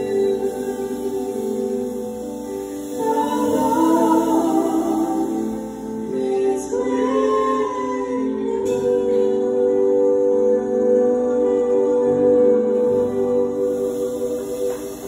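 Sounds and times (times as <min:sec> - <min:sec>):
woman singing into a microphone: 0:00.0 - 0:15.0.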